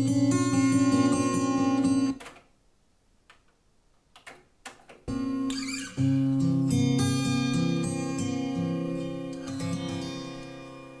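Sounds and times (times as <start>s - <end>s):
guitar-led music: 0.0s - 2.2s, 5.1s - 11.0s.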